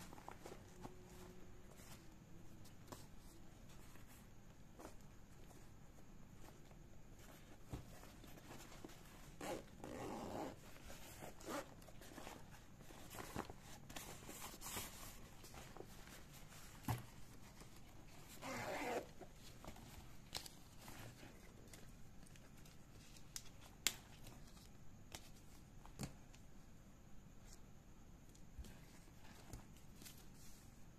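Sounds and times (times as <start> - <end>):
zipper being pulled: 9.3 - 10.6, 18.4 - 19.1.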